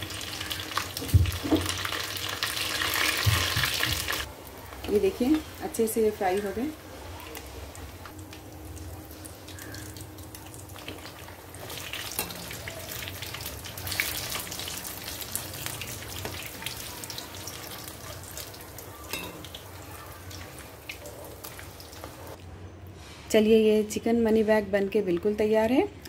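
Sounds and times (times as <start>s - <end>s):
hot oil sizzling and popping: 0.0s - 22.4s.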